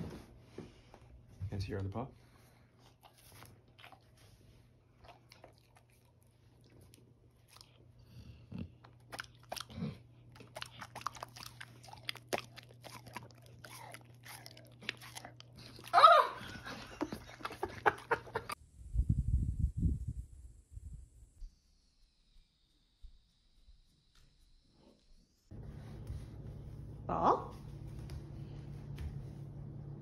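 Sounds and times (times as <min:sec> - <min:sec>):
dog crunching fruit: 0:02.8 - 0:18.1.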